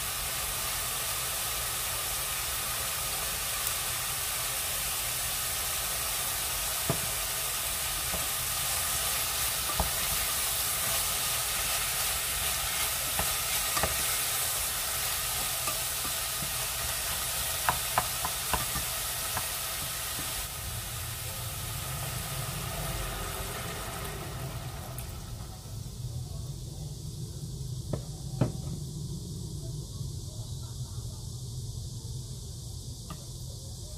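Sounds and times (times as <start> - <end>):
vegetables sizzling in oil: 0.0 - 26.1
wooden spoon knocking on pot: 17.6 - 19.5.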